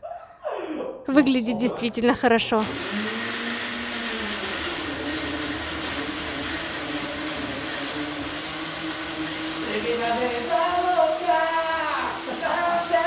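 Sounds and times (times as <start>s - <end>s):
blender motor whirring: 1.2s - 13.0s.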